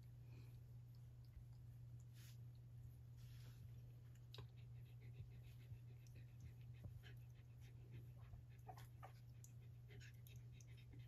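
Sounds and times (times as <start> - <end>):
steady low hum: 0.0 - 11.0
dog panting: 4.4 - 11.0.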